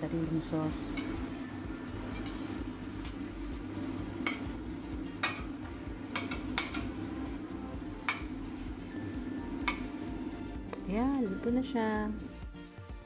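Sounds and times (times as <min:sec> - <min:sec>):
sauce sizzling in a frying pan: 0:00.3 - 0:10.7
metal utensil scraping a pan: 0:02.0 - 0:03.5, 0:06.1 - 0:07.0.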